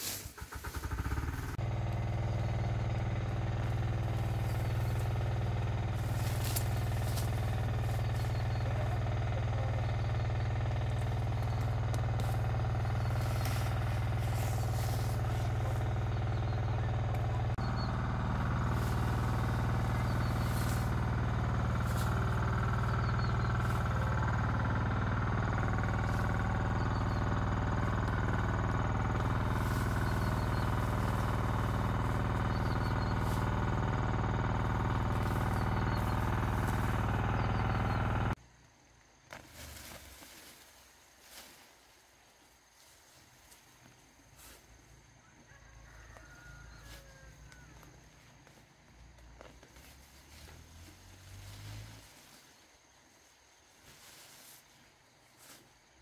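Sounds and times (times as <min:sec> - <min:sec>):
small engine running: 0:00.0 - 0:38.4, 0:49.4 - 0:52.6.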